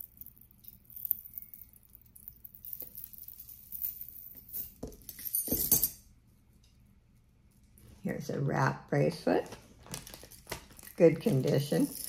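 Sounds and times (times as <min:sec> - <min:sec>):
metal jewelry clinking: 0:00.0 - 0:06.1, 0:10.1 - 0:12.0.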